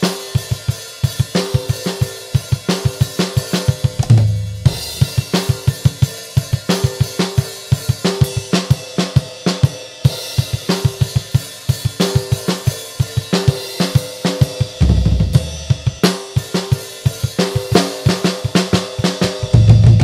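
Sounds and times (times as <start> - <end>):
drum kit groove: 0.0 - 20.0
rapid low drum strokes: 2.8 - 6.5.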